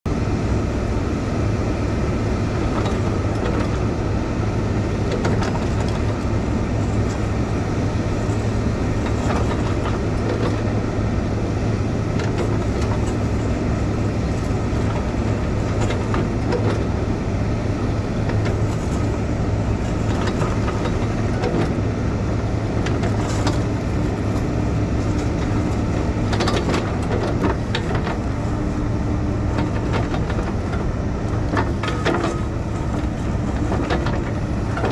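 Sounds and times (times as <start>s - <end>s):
heavy diesel equipment humming: 0.1s - 34.9s
knocks and clanks: 5.1s - 6.2s, 9.0s - 10.7s, 12.2s - 13.5s, 14.8s - 17.0s, 22.8s - 23.7s, 25.0s - 28.3s, 29.5s - 34.9s.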